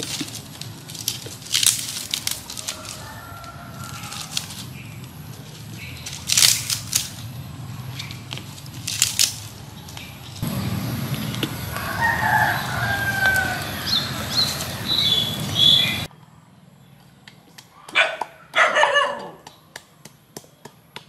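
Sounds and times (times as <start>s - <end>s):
chickens calling: 0.0s - 7.2s, 9.2s - 16.1s
rooster crowing: 2.4s - 4.6s, 11.5s - 16.1s
steady low rumble: 3.6s - 16.4s.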